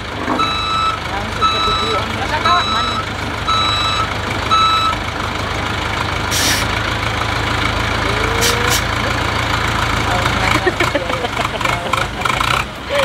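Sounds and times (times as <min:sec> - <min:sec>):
diesel engine running: 0:00.0 - 0:13.0
back-up alarm beep: 0:00.4 - 0:05.0
short hiss: 0:06.3 - 0:06.7.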